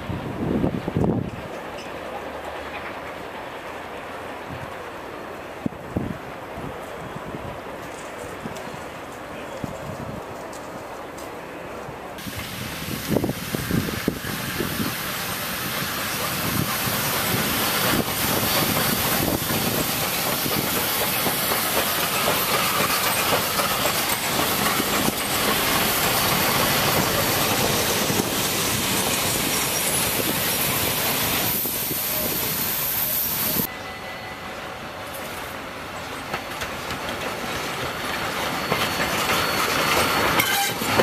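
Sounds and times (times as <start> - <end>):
train wheels on rails: 0.0 - 41.0
steam hissing: 12.2 - 33.7.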